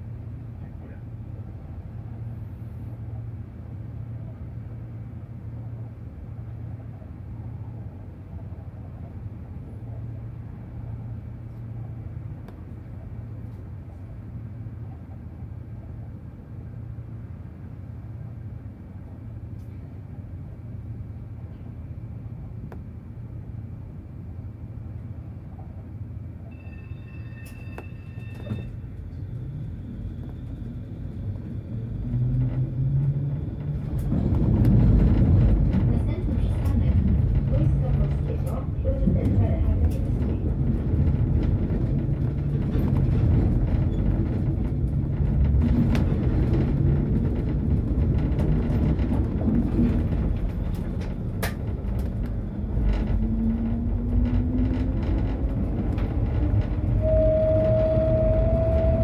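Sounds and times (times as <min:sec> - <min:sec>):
tram rumbling along track: 0:00.0 - 0:59.0
brief high tone: 0:26.5 - 0:28.8.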